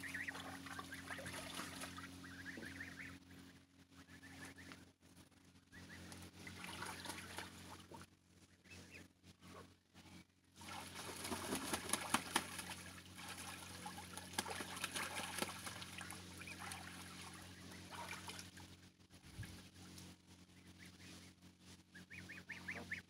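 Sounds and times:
geese splashing in water: 0:00.0 - 0:03.2, 0:05.7 - 0:08.1, 0:10.5 - 0:20.1.

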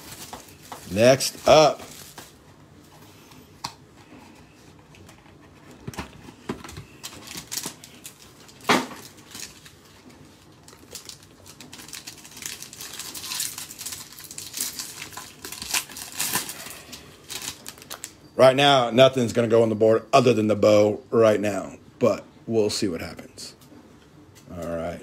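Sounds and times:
plastic wrapper crinkling and tearing: 0:00.0 - 0:02.4, 0:06.8 - 0:18.2.

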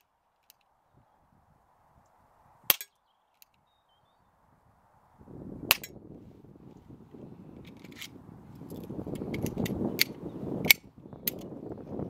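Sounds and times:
wind rumble on microphone: 0:00.9 - 0:02.7, 0:04.0 - 0:12.0
air pistol firing: 0:05.7 - 0:05.9.

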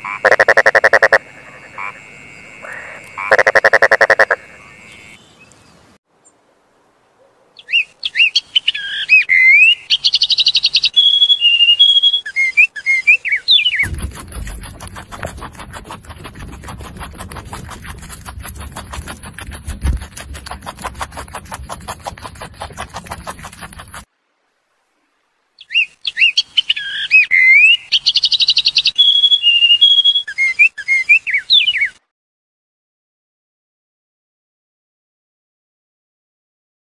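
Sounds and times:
fast dense clicking: 0:13.8 - 0:24.1.

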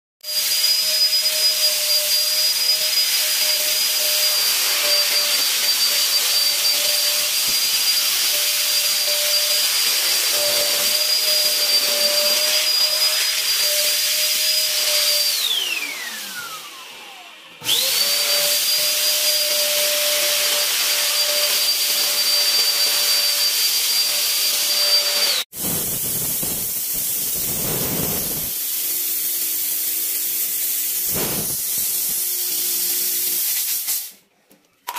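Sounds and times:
fog spraying hiss: 0:25.5 - 0:34.1
fogging machine hiss and whine: 0:25.6 - 0:29.9, 0:30.8 - 0:32.3.

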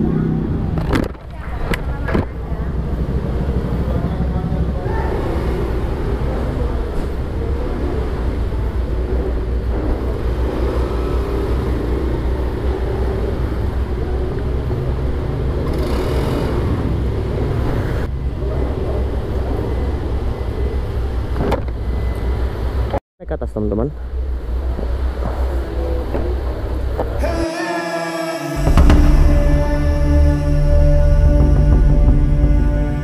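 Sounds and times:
low engine rumble: 0:00.0 - 0:15.7, 0:24.0 - 0:33.0
motor scooters riding slowly: 0:00.0 - 0:21.8.

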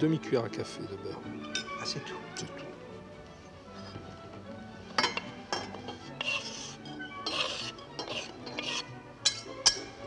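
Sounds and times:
metal utensil scraping a pan: 0:05.0 - 0:09.9.

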